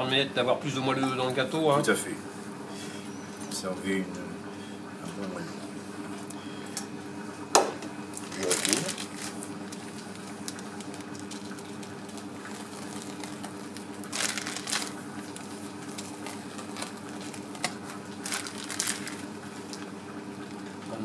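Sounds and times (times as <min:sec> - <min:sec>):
steady low hum: 0:00.0 - 0:21.0
cream squishing from piping bag: 0:08.1 - 0:19.8.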